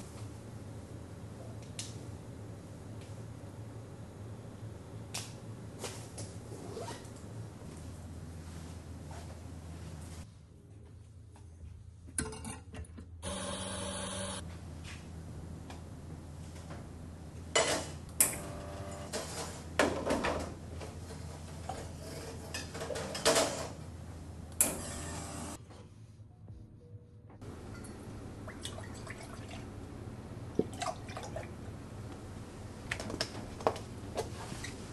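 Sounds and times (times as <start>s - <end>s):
low machine hum: 0.0s - 34.9s
coffee grinder whirr: 13.2s - 14.4s.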